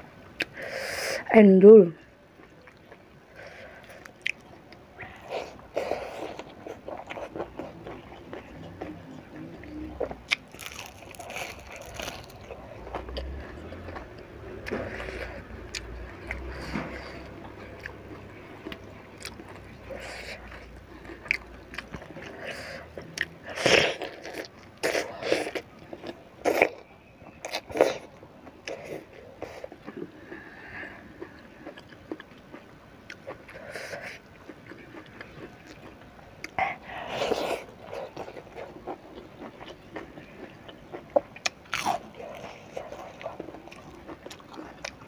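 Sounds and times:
soft chewing: 2.0s - 45.0s
crunchy bites of fried fish: 10.3s - 14.1s, 38.1s - 45.0s.

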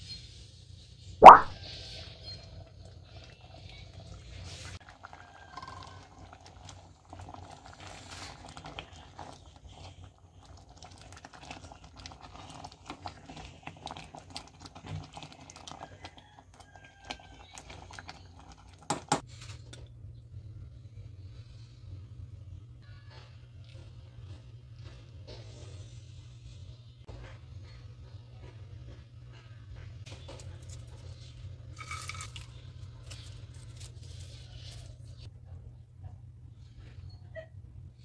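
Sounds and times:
ladle scraping a pot: 30.2s - 35.3s.

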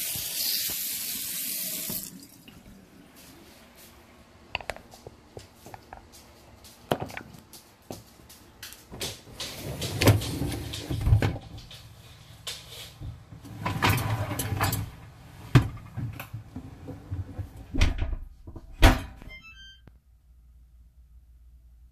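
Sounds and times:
dishwasher door shutting: 17.6s - 19.2s
short beeps: 19.3s - 19.8s.

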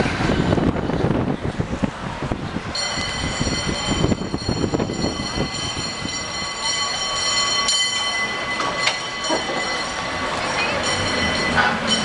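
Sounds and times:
street traffic rumble: 0.0s - 12.0s
cable car wheels squealing: 2.8s - 12.0s.

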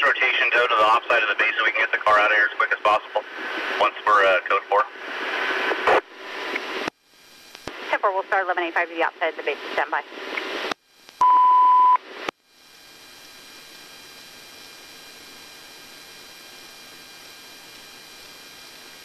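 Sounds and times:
radio static burst: 0.0s - 6.9s, 7.5s - 10.7s
faint radio hiss: 0.0s - 11.2s
loud steady beep: 11.2s - 12.0s.

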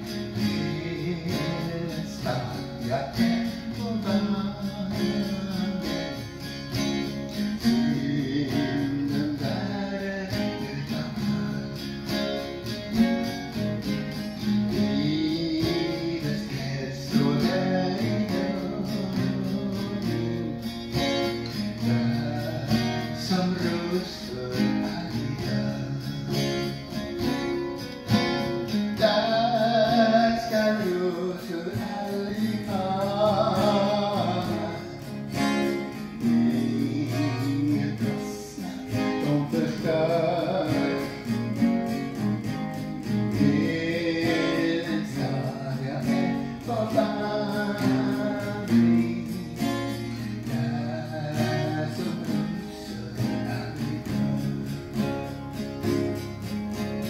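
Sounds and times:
man singing: 0.0s - 56.4s
acoustic guitar strumming: 0.0s - 57.0s.

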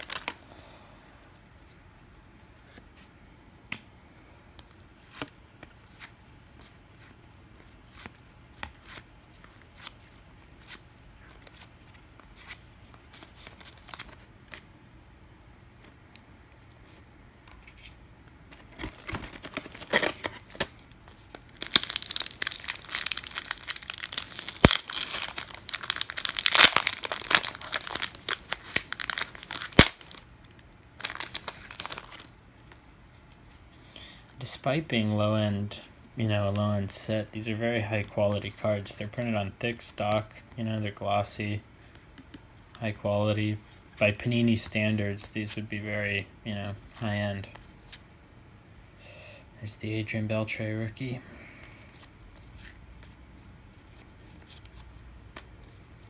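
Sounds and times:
card pack wrapper crinkling: 0.0s - 0.4s, 18.9s - 30.2s, 31.0s - 32.3s.

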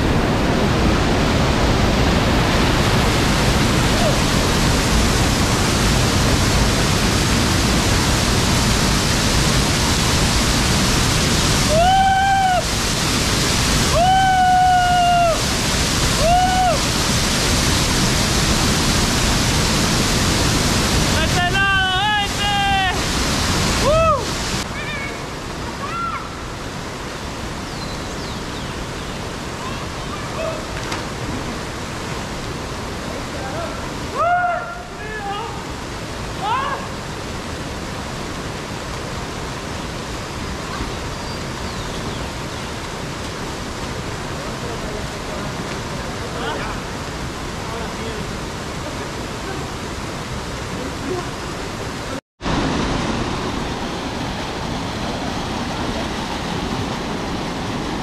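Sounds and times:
waterfall rushing: 0.0s - 58.0s
small waterfall pouring into pool: 3.9s - 26.4s
man yelling: 21.2s - 23.0s, 36.4s - 36.9s.

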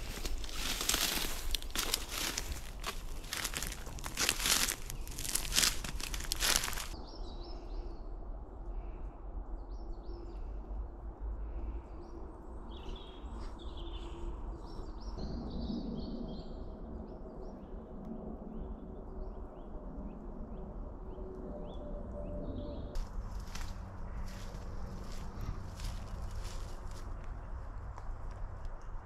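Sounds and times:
footsteps crunching through grass: 0.0s - 7.0s, 23.0s - 27.2s
woodland birds chirping: 0.0s - 7.7s, 23.0s - 27.7s.

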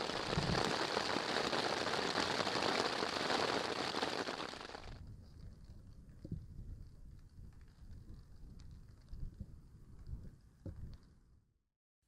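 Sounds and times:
heavy rain pattering: 0.0s - 5.0s.

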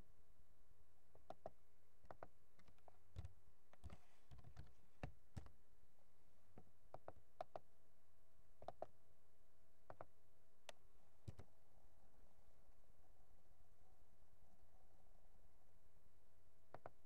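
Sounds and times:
low steady hum: 0.0s - 17.0s
faint keyboard keystrokes: 2.1s - 5.5s, 11.2s - 11.5s.

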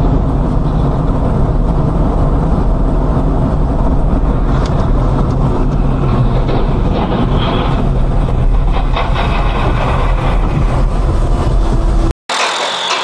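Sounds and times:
car driving on wet road: 0.0s - 6.9s.

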